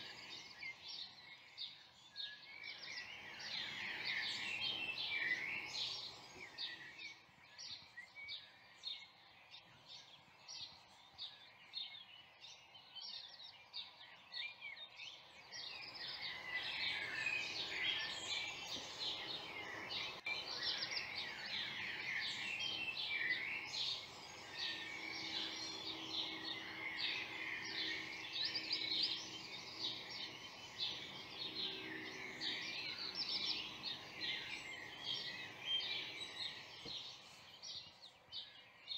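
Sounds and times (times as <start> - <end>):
songbirds chirping and trilling: 0.0 - 38.9.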